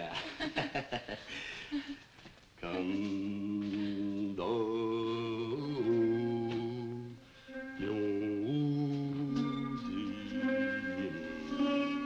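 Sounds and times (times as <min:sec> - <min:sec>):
man singing slow lullaby: 0:02.6 - 0:12.0.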